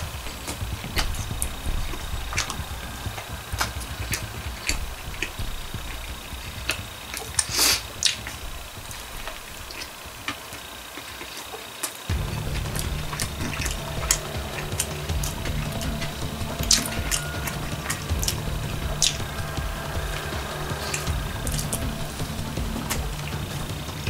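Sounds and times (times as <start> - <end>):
background music: 0.0 - 11.4, 12.1 - 24.0.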